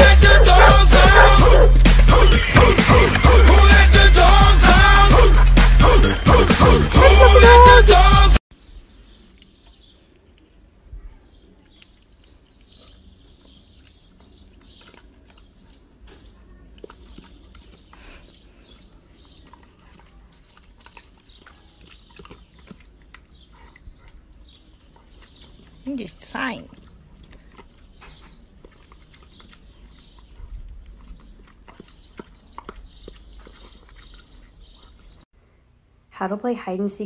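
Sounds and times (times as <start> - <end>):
dog chewing watermelon: 0.0 - 2.3, 9.2 - 35.2.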